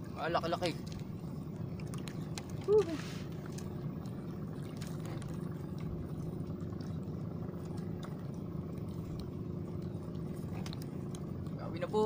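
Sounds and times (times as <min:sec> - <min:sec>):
small boat engine running: 0:00.0 - 0:12.0
faint clicks: 0:09.0 - 0:09.4.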